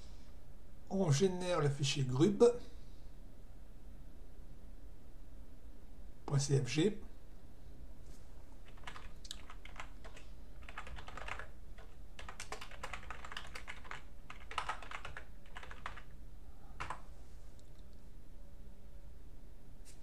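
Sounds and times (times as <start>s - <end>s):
computer keyboard typing: 8.6s - 16.1s, 16.8s - 17.0s.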